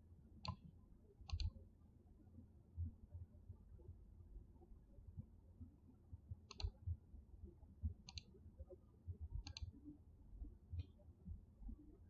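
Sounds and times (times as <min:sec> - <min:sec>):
computer mouse clicking: 0:01.3 - 0:01.6, 0:06.5 - 0:06.7, 0:08.0 - 0:08.3, 0:09.4 - 0:09.7.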